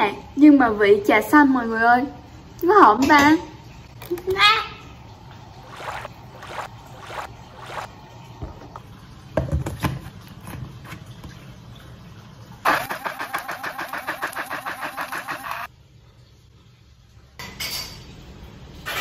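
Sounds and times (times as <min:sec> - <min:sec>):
blender motor chopping: 0:05.6 - 0:07.9, 0:12.7 - 0:15.7.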